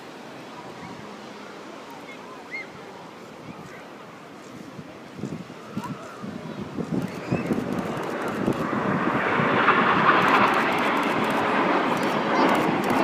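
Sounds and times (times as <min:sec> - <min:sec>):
jets flying past: 0:07.0 - 0:13.0.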